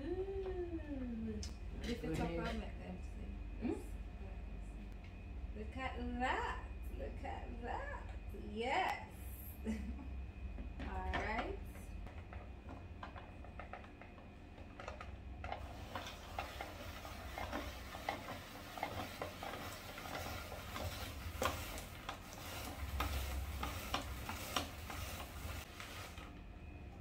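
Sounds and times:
spiralizer scraping crackle: 0:14.8 - 0:26.4.

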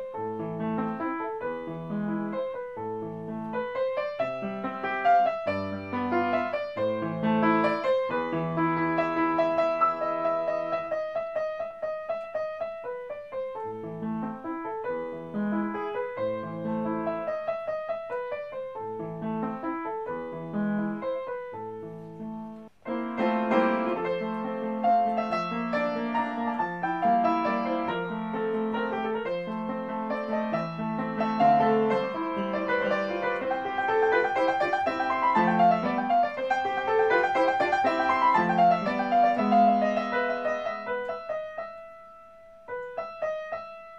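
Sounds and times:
piano music: 0:00.0 - 0:43.9.

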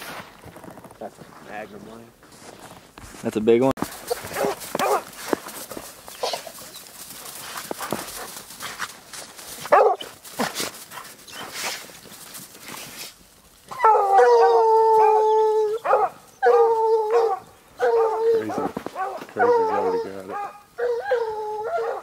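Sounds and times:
hound bawling: 0:03.9 - 0:06.7, 0:13.7 - 0:22.0
hounds whining and yipping: 0:04.0 - 0:08.8, 0:09.5 - 0:11.9, 0:13.7 - 0:22.0.

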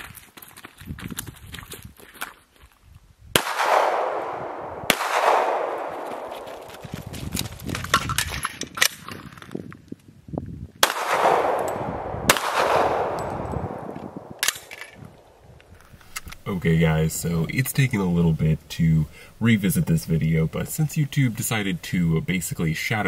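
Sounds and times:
handgun shots echoing: 0:03.4 - 0:06.9, 0:10.8 - 0:15.0.

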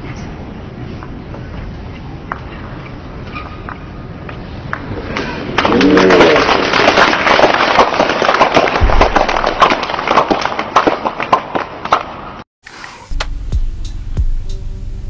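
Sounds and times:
audience applauding: 0:05.6 - 0:11.3.

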